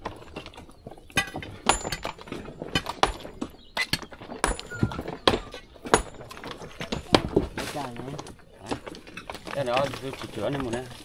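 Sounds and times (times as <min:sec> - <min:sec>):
rocks knocking together: 0:00.0 - 0:11.0.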